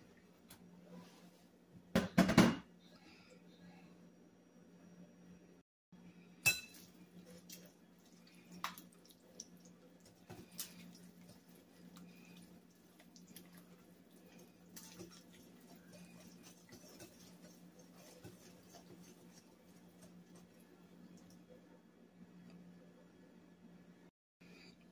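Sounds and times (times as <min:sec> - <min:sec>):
steady low hum: 0:02.7 - 0:24.9
whisk clinking against bowl: 0:13.3 - 0:20.6.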